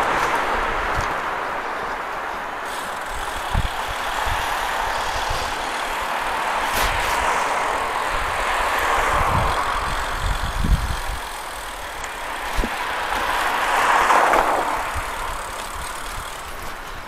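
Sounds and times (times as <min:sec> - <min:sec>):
wind and tyre hiss: 0:00.0 - 0:17.0
bike knocking over bumps: 0:11.8 - 0:13.9.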